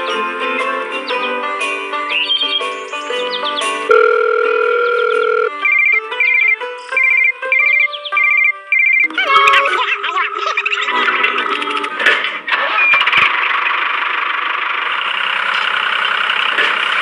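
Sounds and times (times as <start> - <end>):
background music melody: 0.0 - 12.1
trilling electronic ringtone figure: 3.9 - 10.4.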